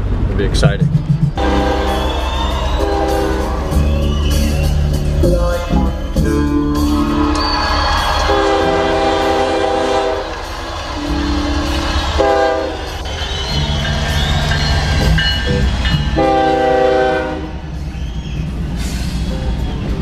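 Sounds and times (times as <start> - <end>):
diesel train rumbling: 0.0 - 20.0
locomotive air horn blasts: 1.4 - 4.9, 8.3 - 13.1, 16.1 - 17.8.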